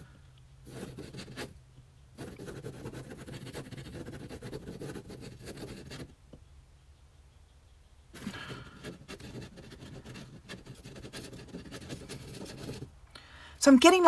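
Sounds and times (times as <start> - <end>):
pen scratching on paper: 0.6 - 1.6, 2.2 - 6.2, 8.2 - 12.9.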